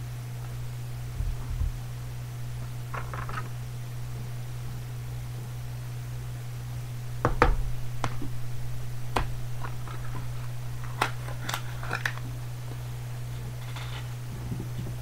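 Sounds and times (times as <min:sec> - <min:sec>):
steady low hum: 0:00.0 - 0:15.0
cards and plastic case clicking: 0:09.6 - 0:12.3.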